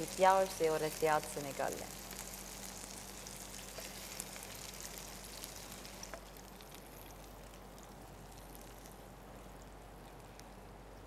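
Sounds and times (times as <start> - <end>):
caramel sizzling in frying pan: 0.0 - 10.2.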